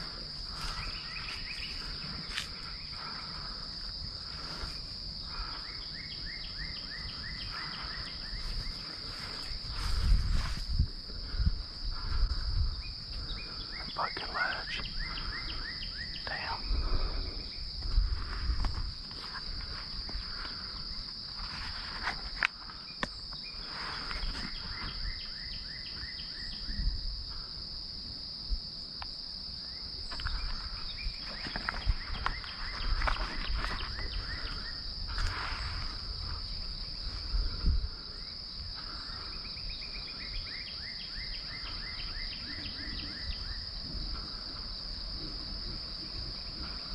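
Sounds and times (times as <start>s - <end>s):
insects droning: 0.0s - 46.9s
wind rumble on microphone: 7.0s - 15.6s, 16.3s - 21.8s, 26.4s - 28.8s, 29.9s - 40.1s.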